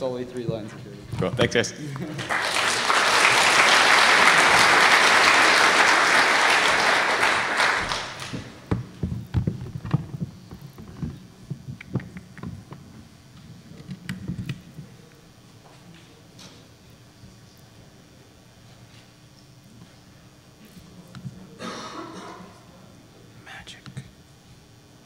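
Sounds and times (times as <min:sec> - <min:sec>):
audience applauding: 0:01.9 - 0:08.7.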